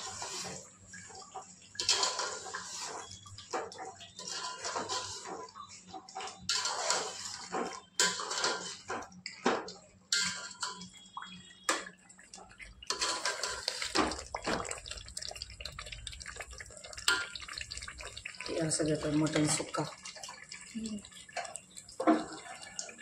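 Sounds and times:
water splashing and running: 10.5 - 23.0.

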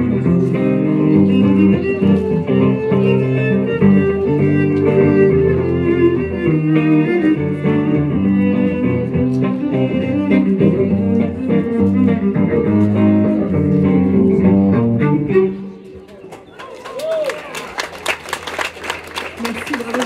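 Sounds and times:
cello and guitar waltz: 0.0 - 15.9.

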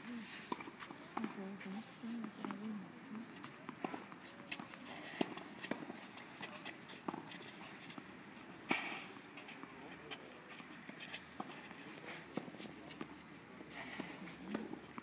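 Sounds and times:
tennis ball bouncing: 3.3 - 8.1.

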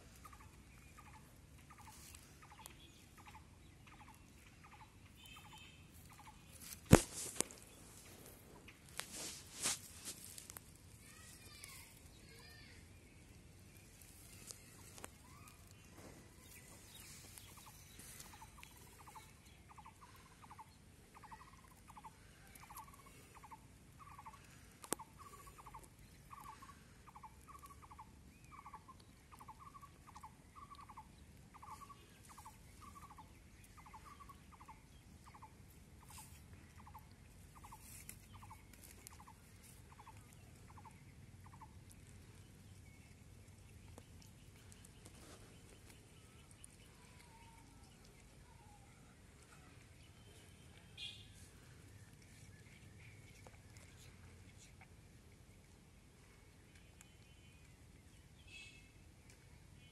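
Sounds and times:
faint animal call: 46.2 - 52.5.

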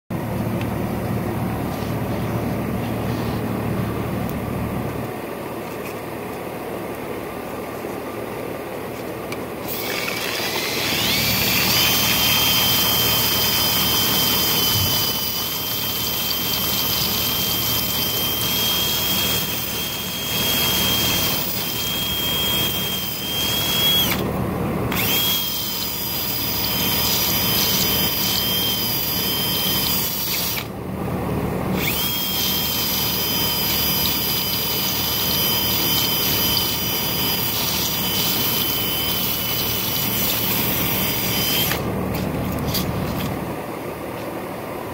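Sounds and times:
cordless drill whining: 9.6 - 24.3, 24.9 - 30.7, 31.7 - 41.9.

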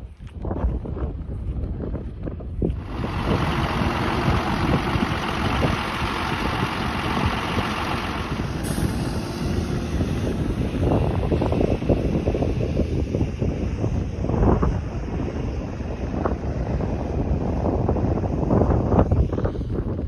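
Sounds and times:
wind on microphone: 0.0 - 20.0
truck engine running: 2.6 - 20.0.

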